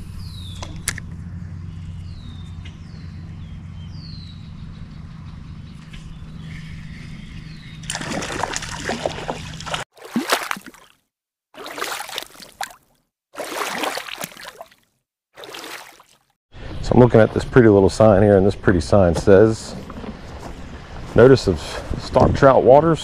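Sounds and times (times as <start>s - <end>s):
stream water running: 7.8s - 11.0s, 11.6s - 16.3s.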